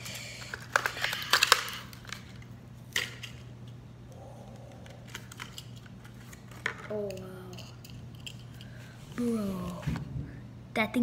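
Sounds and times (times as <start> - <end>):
plastic packaging torn open: 0.6 - 2.3.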